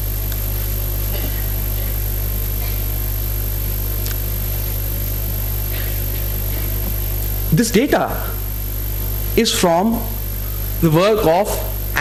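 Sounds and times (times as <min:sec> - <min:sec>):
electrical mains hum: 0:00.0 - 0:12.0
sound system hiss: 0:00.0 - 0:12.0.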